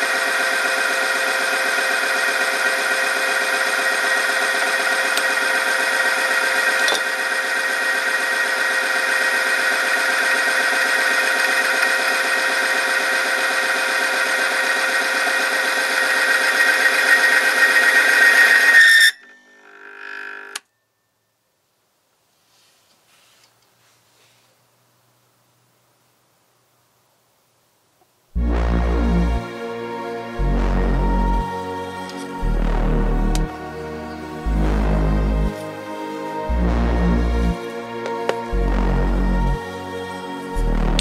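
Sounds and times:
machine grinding whine: 0.0 - 20.7, 28.4 - 41.0
faint hum: 23.4 - 41.0.

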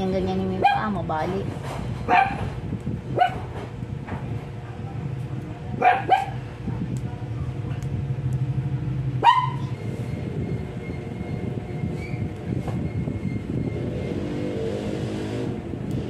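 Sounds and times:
steady low hum: 0.0 - 16.0
small dog barking: 0.6 - 0.8, 2.1 - 2.5, 3.1 - 3.5, 5.8 - 6.4, 9.2 - 9.7.

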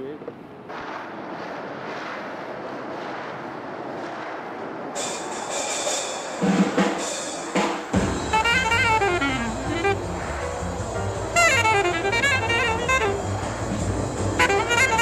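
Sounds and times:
noisy rumble: 0.0 - 15.0
sharp hits: 0.6 - 15.0
music: 5.0 - 15.0.

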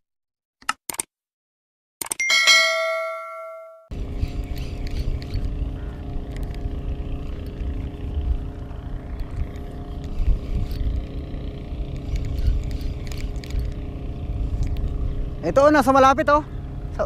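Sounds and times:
engine hum: 3.9 - 17.0.

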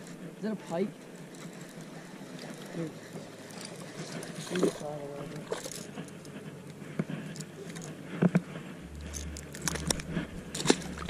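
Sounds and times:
handling clicks and scrapes: 1.2 - 11.0
low rumble: 8.6 - 11.0.

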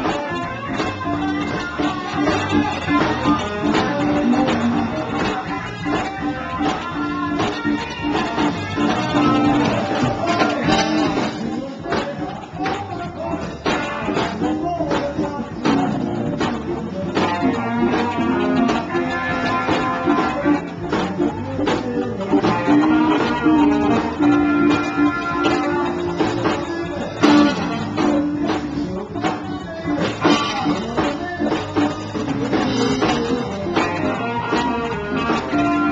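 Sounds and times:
drum kit: 0.0 - 35.9
electric guitars: 0.0 - 35.9.

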